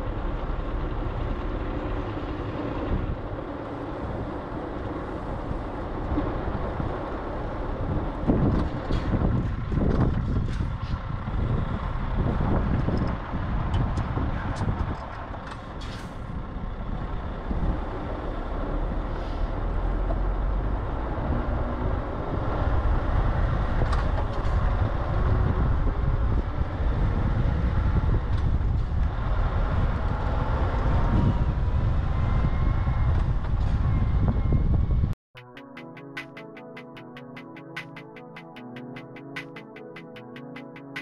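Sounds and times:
truck diesel engine driving: 0.0 - 35.2
scattered clicks: 35.4 - 41.0.

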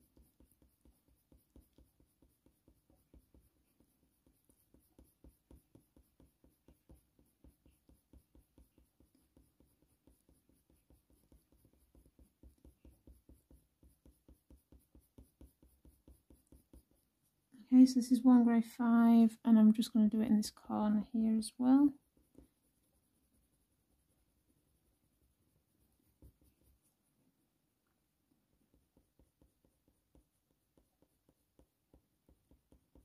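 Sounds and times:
pencil scratching on paper: 0.0 - 18.1, 20.5 - 27.2, 28.4 - 33.0.

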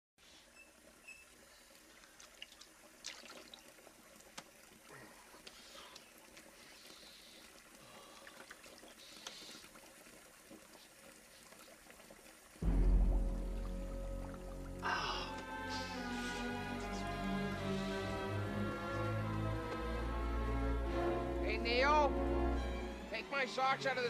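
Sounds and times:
water splashing in a sink: 1.8 - 14.8
water splashed onto face: 2.0 - 15.9.

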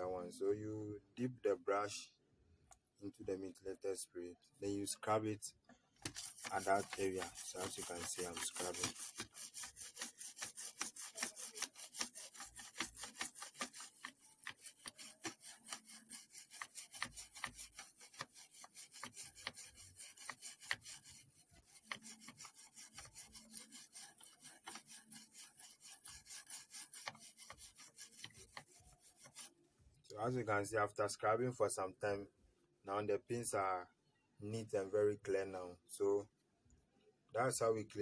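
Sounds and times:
toothbrush scrubbing circuit board: 6.0 - 29.5.

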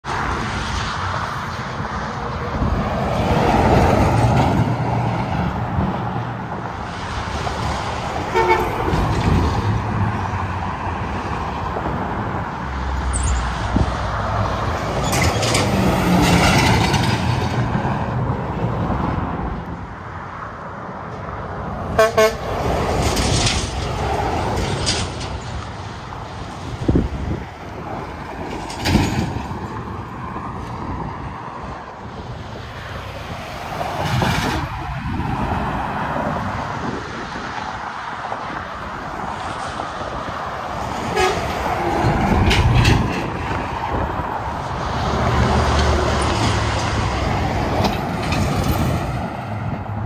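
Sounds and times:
trucks passing on highway: 0.0 - 50.0
truck horn blasts: 8.3 - 8.8, 22.0 - 22.5, 41.1 - 41.6.

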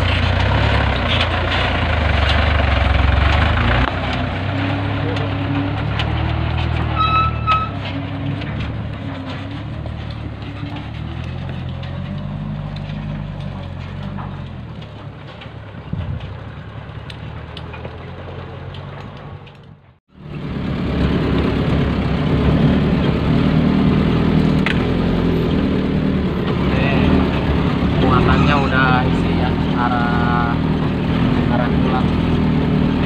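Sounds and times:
truck engines running: 0.0 - 33.0
short high squeal: 6.9 - 7.8.

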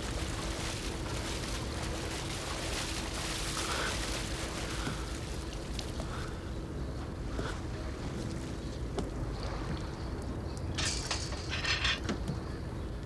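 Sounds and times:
steady hiss: 0.0 - 8.5
faint steady hum: 0.0 - 13.0
water splashing and sloshing: 0.0 - 13.0.

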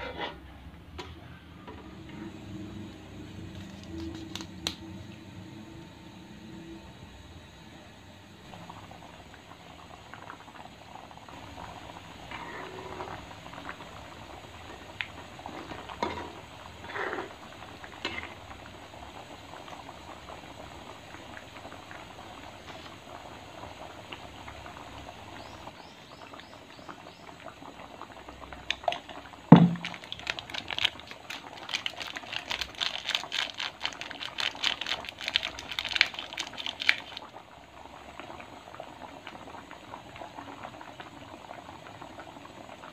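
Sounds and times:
curry bubbling and popping: 16.9 - 42.9.

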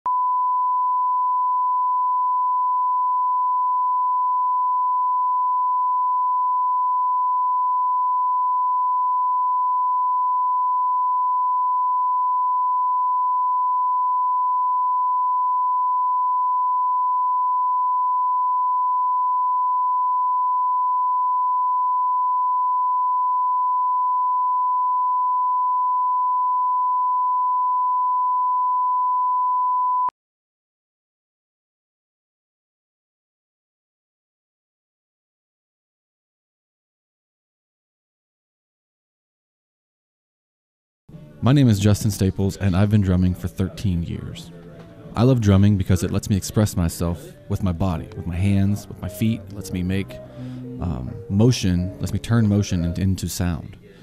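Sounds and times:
steady reference tone beep: 0.1 - 30.1.

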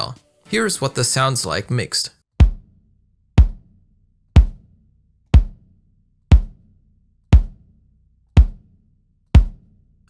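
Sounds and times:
kick drum hits: 2.4 - 2.7, 3.4 - 3.7, 4.4 - 4.7, 5.3 - 5.6, 6.3 - 6.7, 7.3 - 7.7, 8.4 - 8.7, 9.4 - 9.6.

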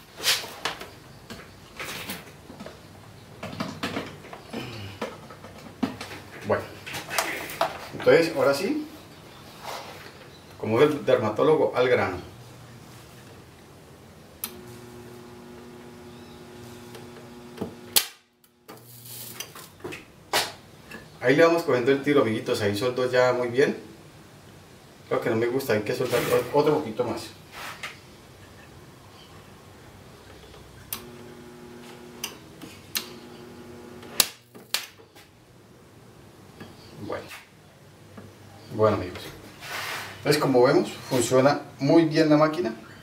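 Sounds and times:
transformer hum: 14.4 - 18.0
transformer buzzing: 14.4 - 19.5, 30.9 - 34.5
sharp electric snap: 16.8 - 19.8, 34.0 - 35.0.

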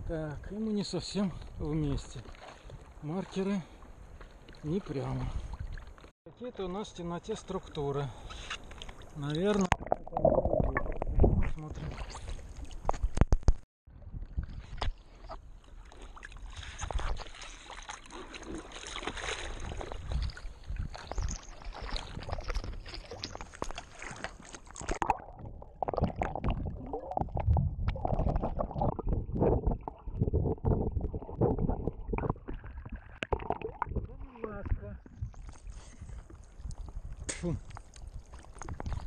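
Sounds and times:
water sloshing against surfboard: 2.0 - 6.1, 14.2 - 25.3.

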